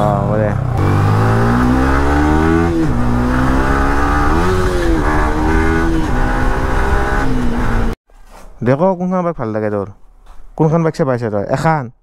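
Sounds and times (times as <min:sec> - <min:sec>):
motorcycle engine revving: 0:00.0 - 0:08.0.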